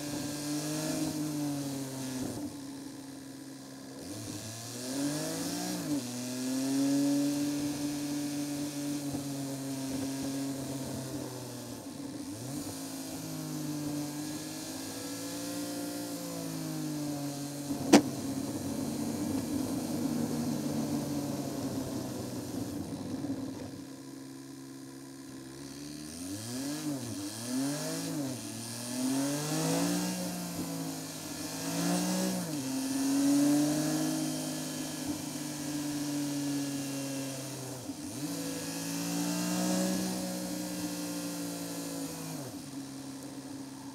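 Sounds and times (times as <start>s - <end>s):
car engine revving through gears: 0.0s - 2.6s, 4.0s - 23.8s, 25.7s - 43.2s
tyre and road noise: 17.6s - 23.8s
sharp knock: 17.9s - 18.2s.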